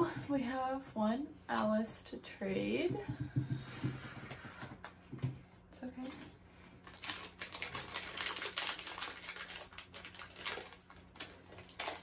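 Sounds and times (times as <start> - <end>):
plastic packaging crinkling and tearing: 6.8 - 12.0.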